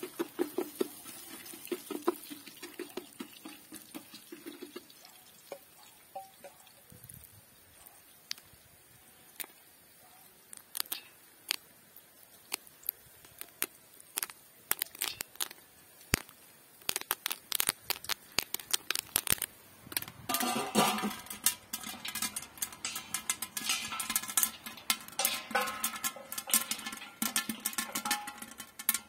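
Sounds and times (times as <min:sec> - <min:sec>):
popcorn popping: 0:00.0 - 0:06.3, 0:10.5 - 0:11.6, 0:12.4 - 0:29.0
steel lid clattering on pot: 0:20.3 - 0:29.0.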